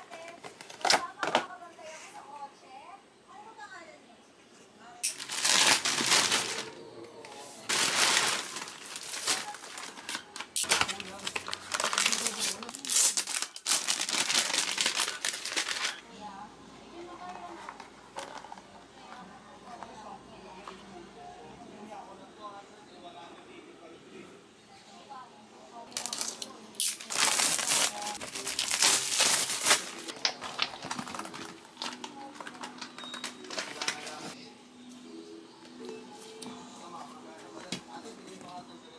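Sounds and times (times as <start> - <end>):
plastic mailer bag crinkling: 5.0 - 6.8, 7.7 - 16.0, 25.9 - 34.4.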